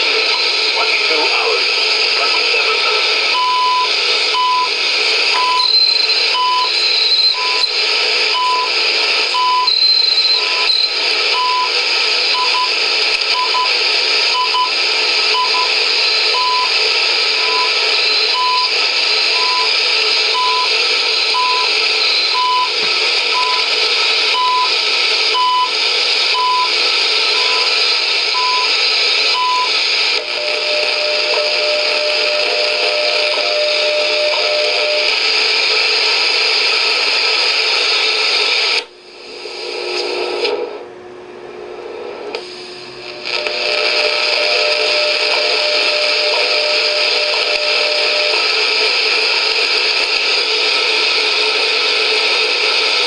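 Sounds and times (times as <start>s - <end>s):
radio hiss and static: 0.0s - 40.9s, 41.7s - 53.0s
time signal beeps: 5.3s - 7.8s, 9.4s - 11.7s, 17.4s - 18.8s, 19.4s - 19.7s, 21.3s - 23.7s, 26.3s - 26.7s, 27.3s - 27.7s, 29.3s - 35.1s.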